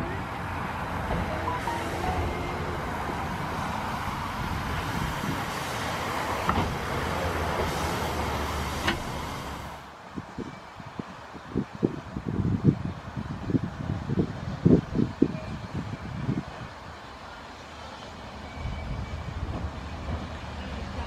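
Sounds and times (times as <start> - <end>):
locomotive clanks: 0.0 - 9.8
steam locomotive rumble and hiss: 0.0 - 21.0.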